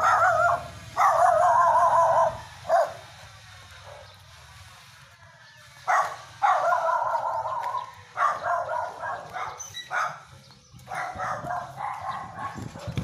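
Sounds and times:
dog calling out: 0.0 - 3.0, 5.9 - 10.3, 10.9 - 13.0.

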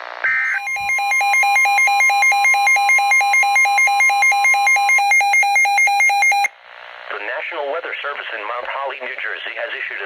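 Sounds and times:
rapid two-pitch alarm warble: 0.3 - 6.5.

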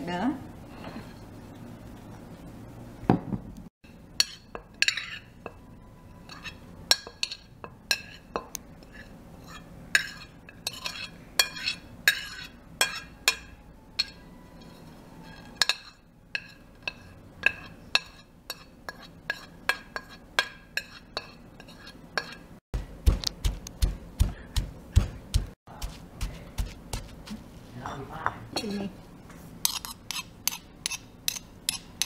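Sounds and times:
metal spoon scraping plate: 4.2 - 5.5, 6.1 - 22.5, 29.6 - 32.0
stone pestle pounding: 22.8 - 27.2.

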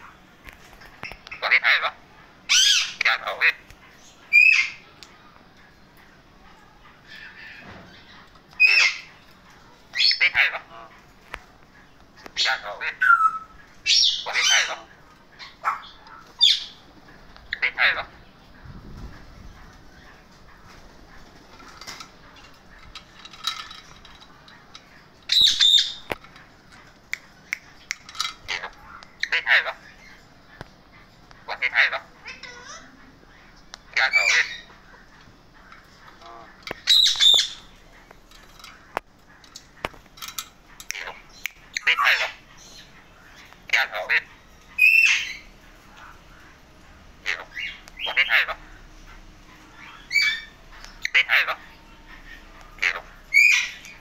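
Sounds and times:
parakeets squawking: 0.0 - 4.9, 6.4 - 54.0
parakeet clicks and chirps: 0.5 - 3.8, 21.6 - 32.6, 33.7 - 45.5.

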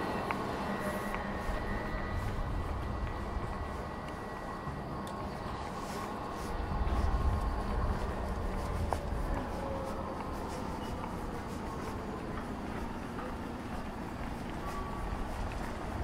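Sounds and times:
footsteps on pavement: 0.0 - 16.0
traffic rumble: 0.0 - 16.0.

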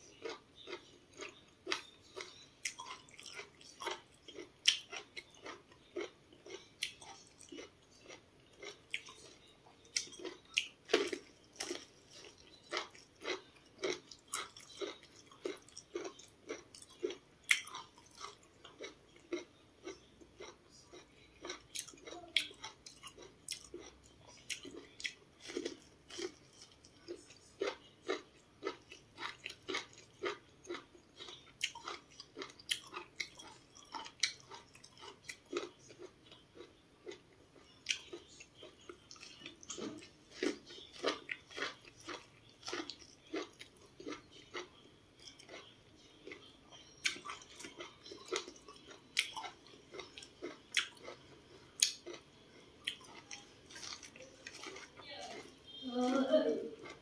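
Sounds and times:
chewing corn: 0.0 - 57.0.

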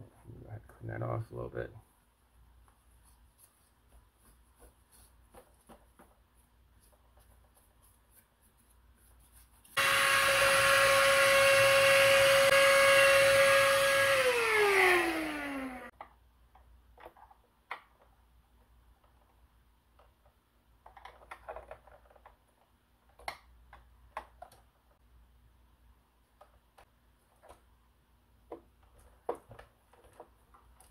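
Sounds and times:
handheld vacuum cleaner whining: 9.8 - 15.9.

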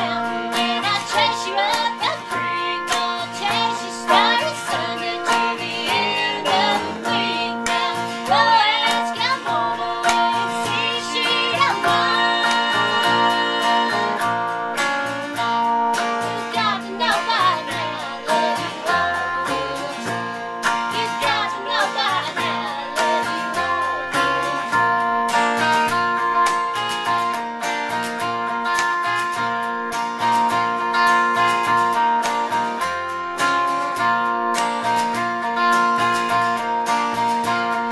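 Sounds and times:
woman singing: 0.0 - 14.9, 16.0 - 25.6
electric guitar: 0.0 - 37.9
strummed acoustic guitar: 0.0 - 37.9.

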